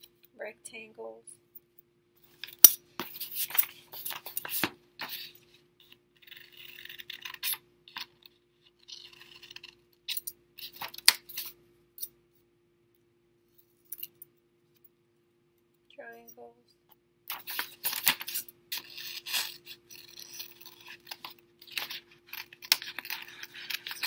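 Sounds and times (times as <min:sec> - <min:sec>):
paper rustling: 0:17.3 - 0:24.0.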